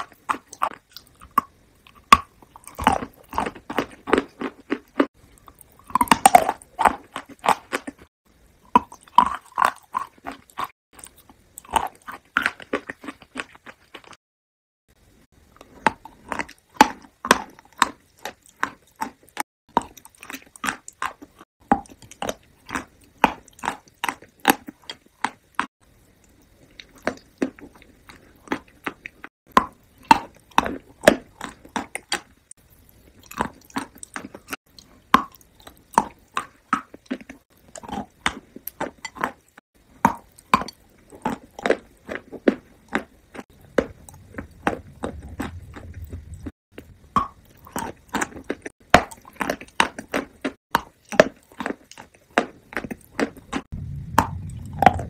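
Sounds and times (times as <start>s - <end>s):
wet mouth chewing clicks and smacks: 33.2s - 55.0s.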